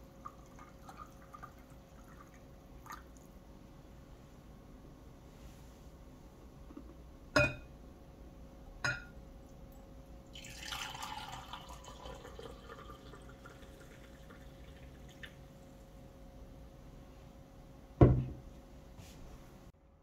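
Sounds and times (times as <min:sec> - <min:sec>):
coffee poured into a mug: 0:00.2 - 0:03.2, 0:10.3 - 0:15.6.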